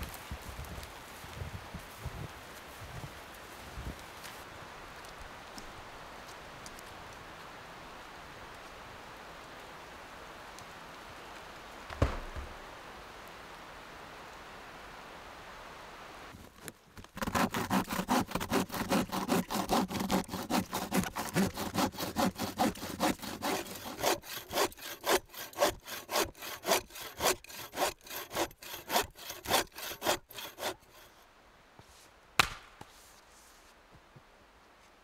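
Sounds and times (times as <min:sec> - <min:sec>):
bow saw cutting log: 0:17.1 - 0:31.2
sharp knock: 0:32.4 - 0:32.8.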